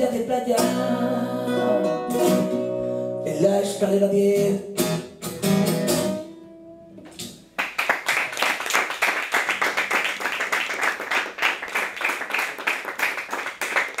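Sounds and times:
audience clapping: 7.5 - 14.0.

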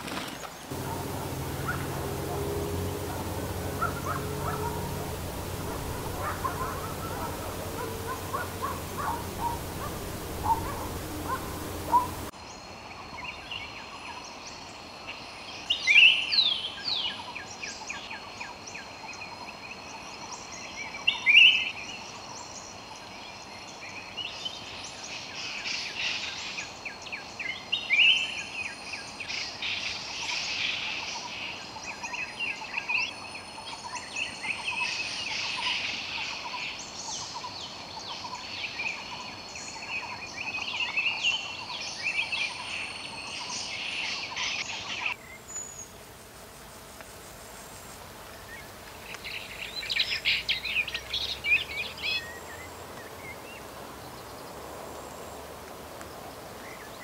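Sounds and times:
birds calling and chirping: 0.7 - 12.3
high-pitched drone: 0.7 - 12.3.

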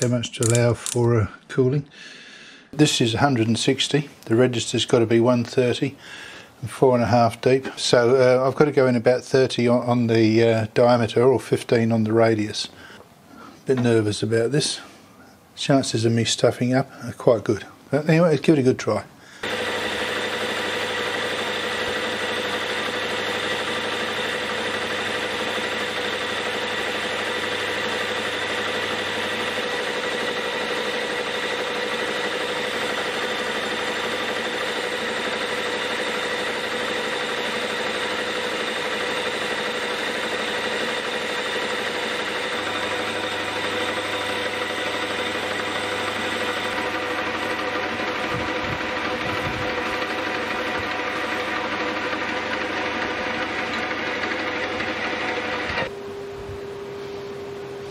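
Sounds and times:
metal lathe whining: 19.4 - 55.9.

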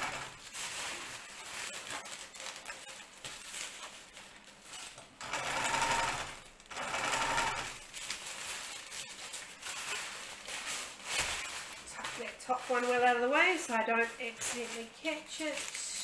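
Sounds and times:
sewing machine stitching: 0.0 - 0.4, 5.2 - 7.8
fabric rustling: 0.1 - 5.2, 7.1 - 16.0.

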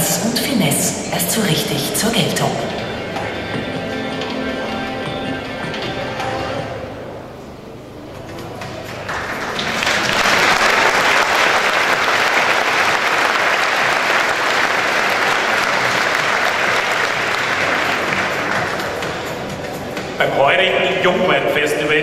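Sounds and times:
audience applauding: 8.7 - 19.4.

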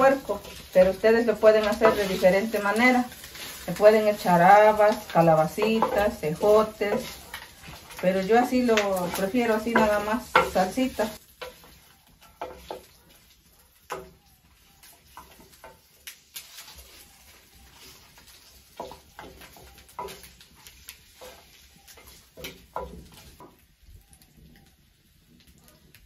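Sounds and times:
wooden spoon scraping clay pot: 0.0 - 13.3
faint frying sizzle: 0.0 - 26.0.

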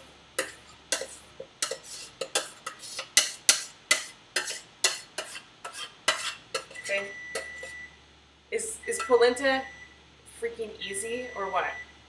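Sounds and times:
utensil scraping metal saucepan: 0.4 - 7.8.

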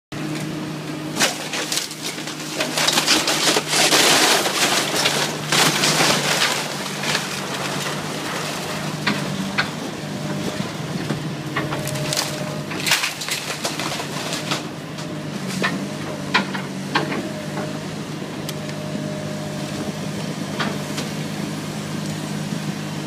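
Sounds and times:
diesel engine running: 0.1 - 23.0
wood and debris crashing: 1.1 - 9.8, 11.6 - 17.1.

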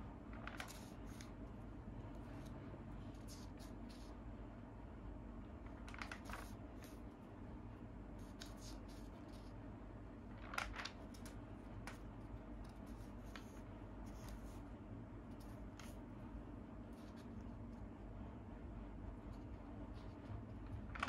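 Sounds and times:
faint low hum: 0.0 - 21.0
magazine pages rustling: 5.8 - 7.0, 10.4 - 12.0.

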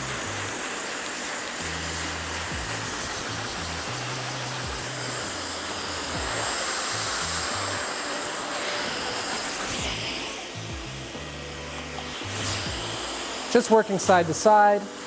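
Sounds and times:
hair dryer blowing: 0.0 - 15.0
background music with bass: 1.6 - 7.8, 9.8 - 14.5.

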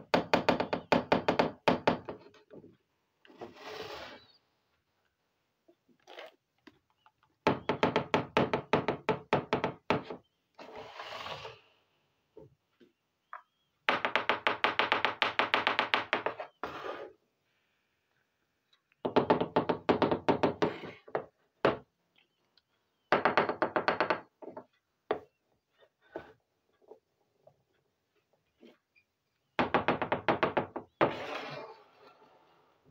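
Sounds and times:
plastic toys knocking: 13.9 - 16.4.

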